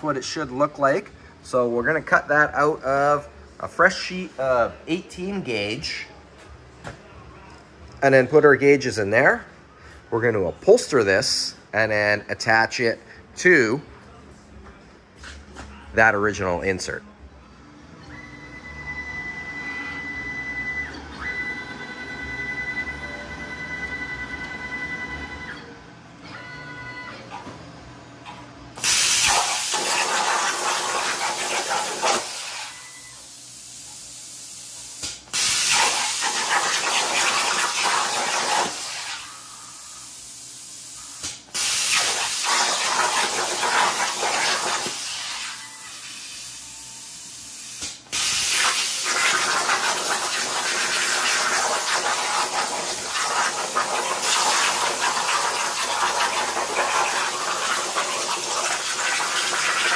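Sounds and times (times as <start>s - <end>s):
power tool hissing cutting steel: 28.8s - 32.8s, 35.3s - 39.4s, 41.5s - 46.6s, 48.1s - 59.9s.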